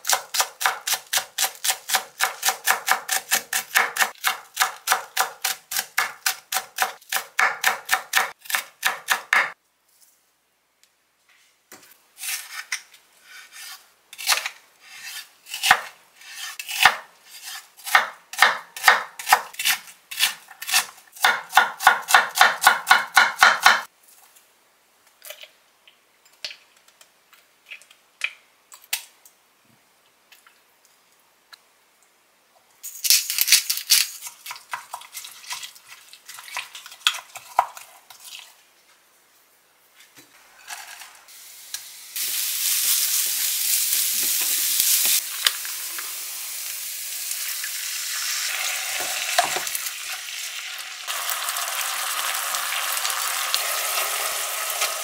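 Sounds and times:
knife chopping on wooden board: 0:00.1 - 0:09.6, 0:21.2 - 0:23.9.

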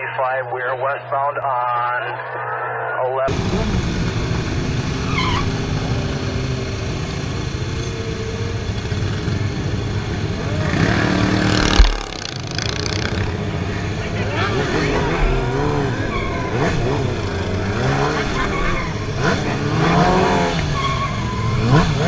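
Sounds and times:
motorcycle engines humming: 0:03.3 - 0:22.0
loud thump: 0:11.5 - 0:12.6.

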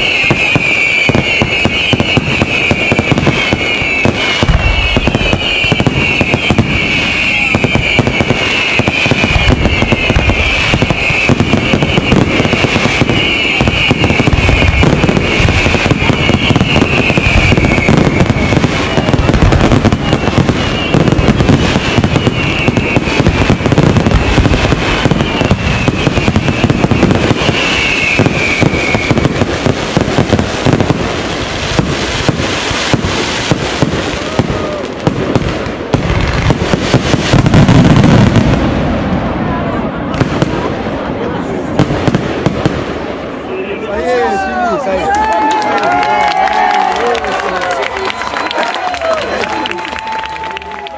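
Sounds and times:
high shrill whistle: 0:00.0 - 0:29.6
fireworks bangs and crackles: 0:00.0 - 0:50.9.

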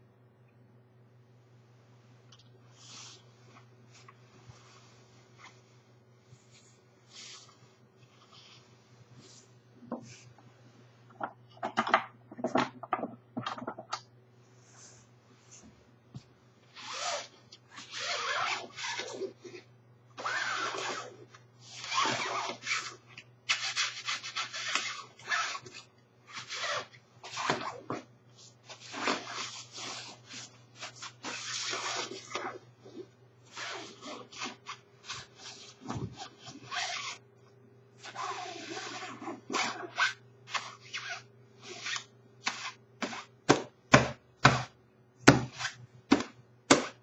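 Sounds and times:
nylon jacket rustling: 0:17.9 - 0:19.2.

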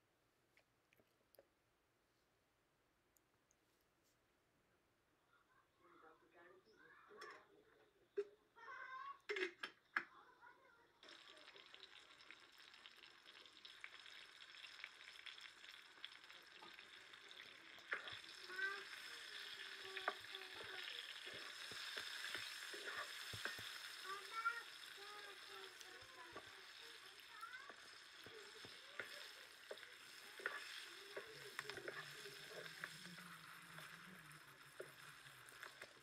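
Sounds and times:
oil sizzling in a frying pan: 0:11.0 - 0:36.0
wooden spatula scraping a pan: 0:17.9 - 0:23.9, 0:27.7 - 0:36.0.

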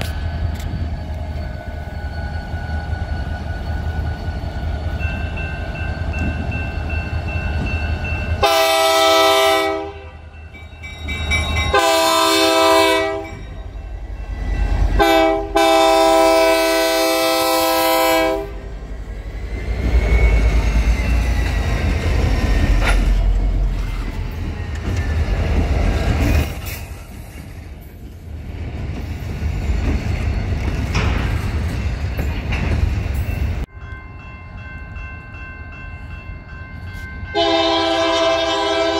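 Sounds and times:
diesel locomotives rumbling past: 0:00.0 - 0:38.9
locomotive horn blasts: 0:08.4 - 0:10.3, 0:11.7 - 0:13.4, 0:15.0 - 0:18.6, 0:37.3 - 0:38.9
wheels clicking on rails: 0:19.2 - 0:34.0.

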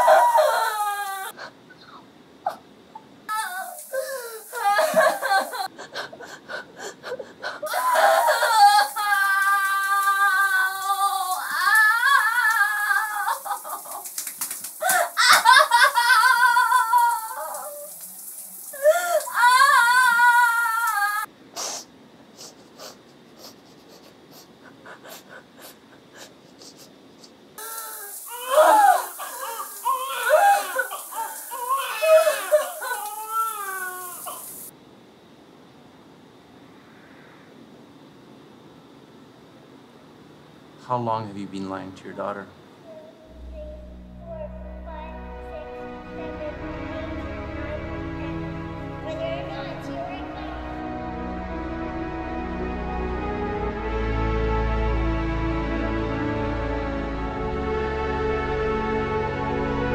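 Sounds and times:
newborn baby crying: 0:00.0 - 0:01.4, 0:03.3 - 0:05.7, 0:07.2 - 0:14.0, 0:14.8 - 0:17.9, 0:27.6 - 0:34.7
woman wailing: 0:00.0 - 0:01.4, 0:03.3 - 0:05.7, 0:07.6 - 0:14.0, 0:14.8 - 0:18.0, 0:18.7 - 0:21.3, 0:27.6 - 0:34.7
woman sobbing: 0:00.0 - 0:01.6, 0:03.3 - 0:14.1, 0:14.8 - 0:18.0, 0:18.7 - 0:21.3, 0:22.4 - 0:34.6.

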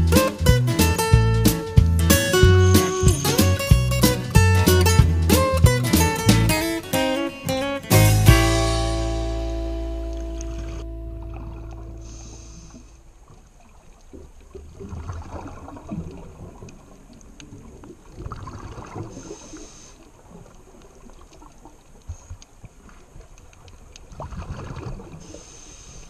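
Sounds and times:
regulator inhalation hiss: 0:12.0 - 0:13.0, 0:25.3 - 0:26.0
exhaled bubbles gurgling: 0:13.6 - 0:19.5, 0:24.1 - 0:25.3.

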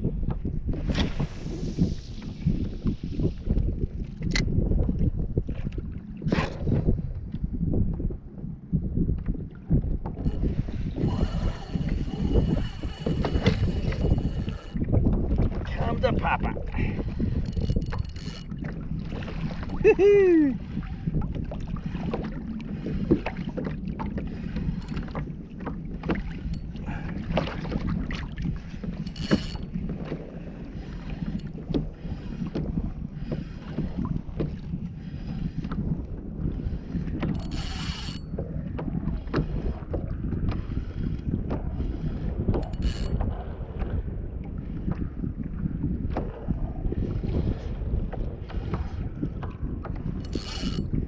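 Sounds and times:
water lapping against hull: 0:00.0 - 0:51.0
wind buffeting microphone: 0:00.0 - 0:51.0
fishing reel clicking: 0:10.2 - 0:14.8, 0:17.3 - 0:18.6, 0:29.0 - 0:29.7, 0:37.3 - 0:38.3, 0:42.7 - 0:43.2, 0:50.2 - 0:50.9.

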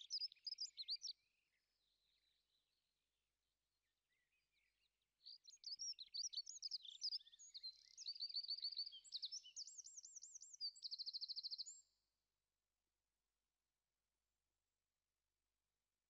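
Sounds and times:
songbird singing: 0:00.0 - 0:02.9, 0:03.7 - 0:12.0.

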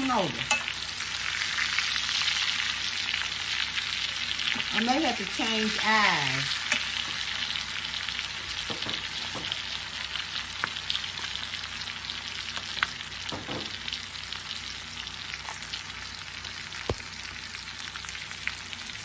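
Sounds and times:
chicken sizzling in skillet: 0:00.0 - 0:19.0
metal tongs clicking on pan: 0:00.4 - 0:00.8.

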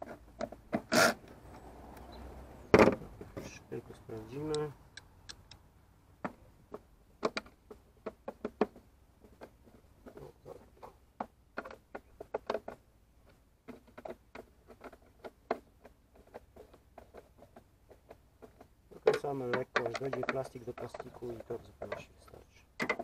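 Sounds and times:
hard plastic clicks and knocks: 0:02.7 - 0:03.6, 0:06.2 - 0:10.3, 0:11.1 - 0:23.0.

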